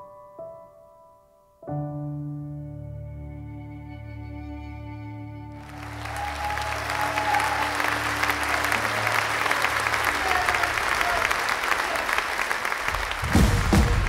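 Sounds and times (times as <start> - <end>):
soft keyboard music: 0.0 - 6.4
audience applause: 5.6 - 14.0.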